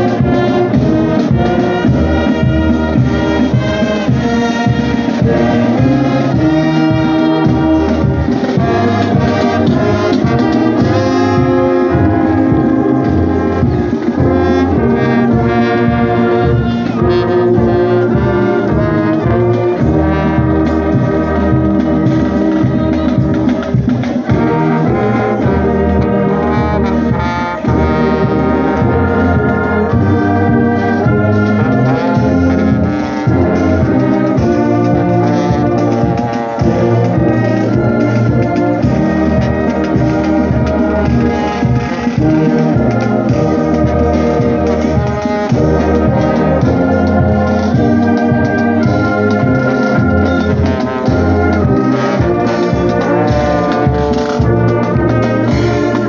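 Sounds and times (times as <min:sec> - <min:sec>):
brass band playing: 0:00.0 - 0:56.0.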